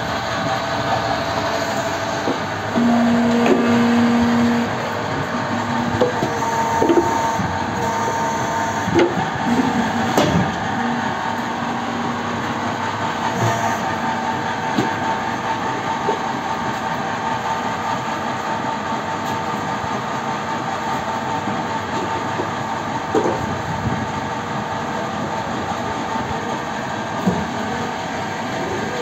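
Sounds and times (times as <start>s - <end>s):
machinery rumble and hum: 0.0s - 29.0s.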